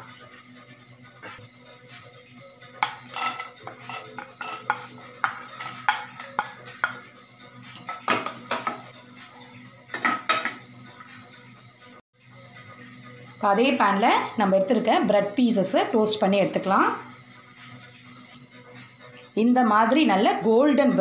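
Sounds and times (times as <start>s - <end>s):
spoon scraping on ceramic plate: 2.8s - 7.0s
spatula scraping a frying pan: 2.8s - 10.6s.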